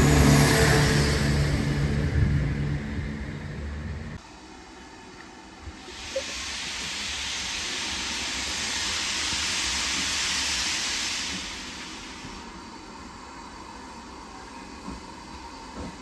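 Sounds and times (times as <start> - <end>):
locomotive steam hissing: 5.4 - 16.0.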